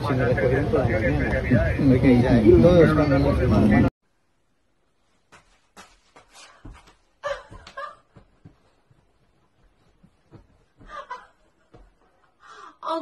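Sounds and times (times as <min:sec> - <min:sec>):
woman laughing: 0:07.2 - 0:08.4, 0:10.8 - 0:12.0.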